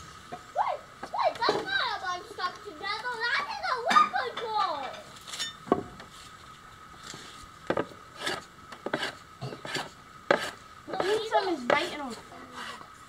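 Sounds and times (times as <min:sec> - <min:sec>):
blade scraping wooden handle: 0:07.7 - 0:12.9.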